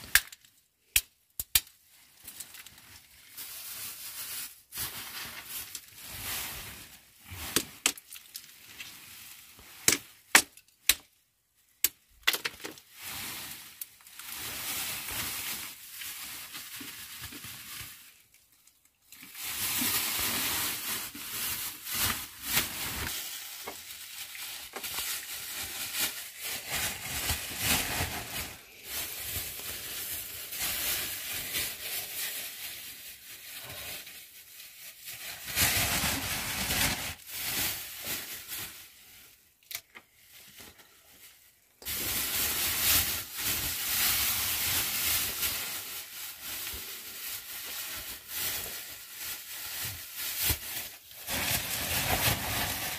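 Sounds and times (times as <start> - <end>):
sharp plastic crackles: 0.0 - 6.1, 7.3 - 9.0, 9.6 - 38.7
plastic bag crinkling: 1.8 - 10.7, 12.0 - 52.9.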